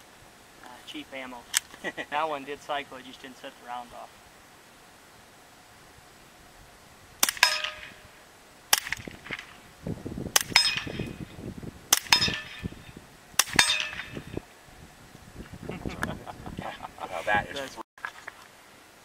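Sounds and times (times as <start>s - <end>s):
suppressed pistol shots: 7.2s - 8.1s, 8.7s - 9.5s, 10.3s - 11.1s, 11.9s - 12.6s, 13.4s - 14.2s
sharp crack with ringing tail: 7.2s - 9.6s, 10.3s - 11.2s, 11.9s - 14.4s.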